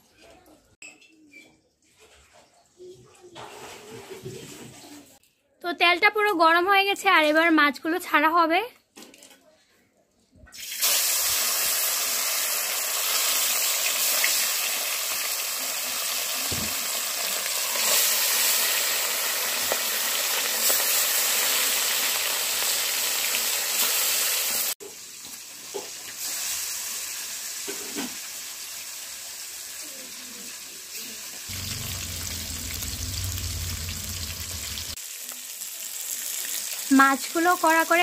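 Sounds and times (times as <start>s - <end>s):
fish sizzling in hot oil: 10.6s - 38.0s.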